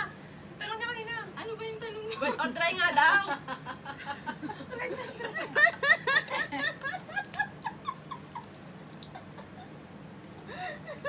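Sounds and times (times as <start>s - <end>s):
woman laughing hard: 3.4s - 9.8s, 10.4s - 11.0s.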